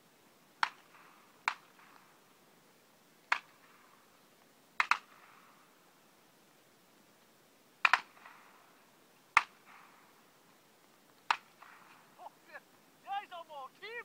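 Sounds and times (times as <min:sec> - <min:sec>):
shotgun shots: 0:07.8 - 0:08.6, 0:09.4 - 0:10.1, 0:11.3 - 0:12.1.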